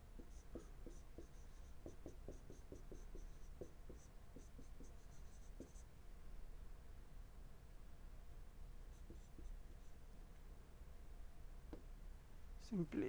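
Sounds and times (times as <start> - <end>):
stylus tapping and scratching tablet: 0.2 - 5.8, 9.0 - 9.8.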